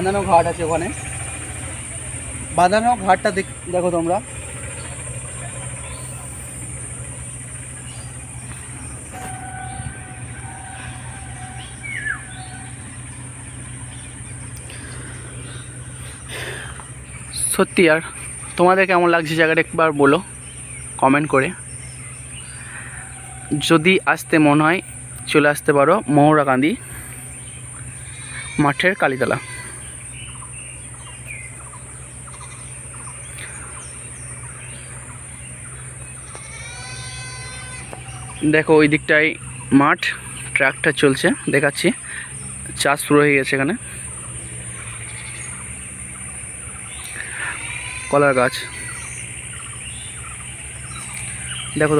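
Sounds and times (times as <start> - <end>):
thin high whine: 0.0 - 13.9
long even tone: 0.0 - 17.8
low rumble: 0.0 - 18.5
bird chirps: 0.0 - 51.9
high-pitched insect drone: 0.0 - 51.9
low steady hum: 0.0 - 51.9.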